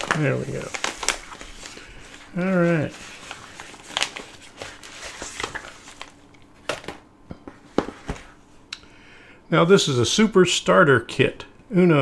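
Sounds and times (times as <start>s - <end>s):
padded mailer rustling: 0.0s - 7.0s.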